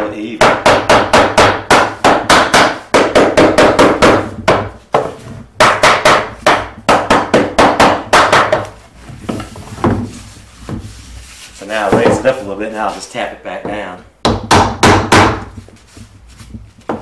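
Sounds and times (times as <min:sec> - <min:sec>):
hammer tapping on wood: 0:00.4 - 0:08.7, 0:13.6 - 0:15.6.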